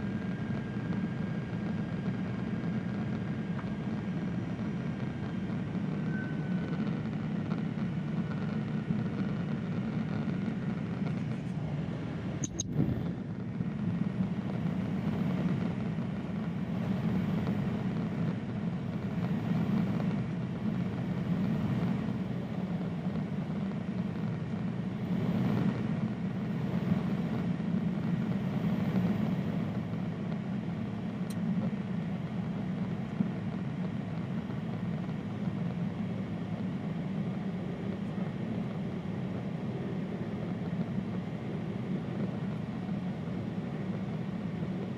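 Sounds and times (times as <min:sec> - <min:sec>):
airplane cabin engine drone: 0:00.0 - 0:44.9
brief click: 0:12.4 - 0:12.7.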